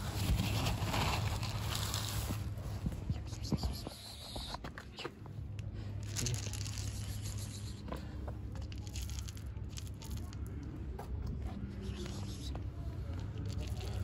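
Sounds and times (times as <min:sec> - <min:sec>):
bag rustling and crinkling: 0:00.0 - 0:02.6
steady low hum: 0:00.0 - 0:14.0
cat kibble rattling in scoop: 0:06.0 - 0:07.6, 0:08.6 - 0:10.5, 0:13.4 - 0:14.0.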